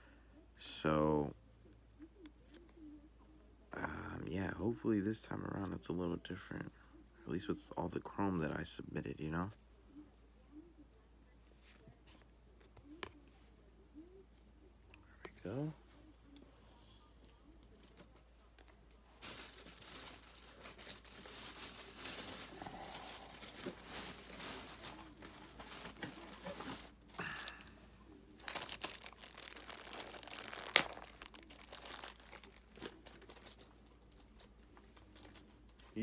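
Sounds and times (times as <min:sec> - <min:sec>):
foil wrapper crinkling and tearing: 0:19.2 - 0:27.6, 0:28.4 - 0:35.5.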